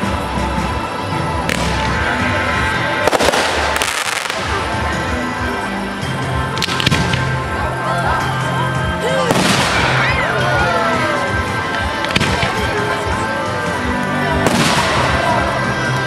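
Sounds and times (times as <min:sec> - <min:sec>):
background music: 0:00.0 - 0:16.0
fireworks bursting with bangs: 0:01.4 - 0:02.1, 0:02.9 - 0:04.8, 0:09.3 - 0:10.0, 0:12.0 - 0:12.9, 0:14.4 - 0:15.5.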